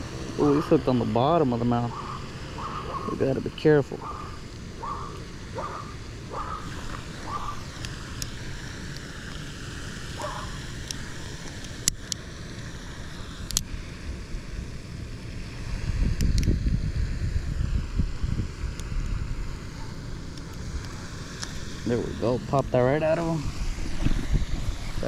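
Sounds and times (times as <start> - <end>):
wind buffeting microphone: 15.5 - 25.0.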